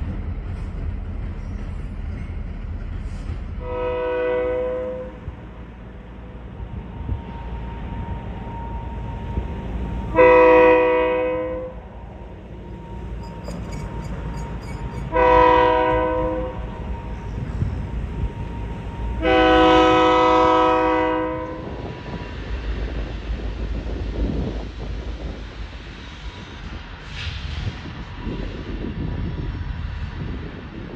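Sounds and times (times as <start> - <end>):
train horn blasts: 3.6 - 5.4, 7.3 - 22.0.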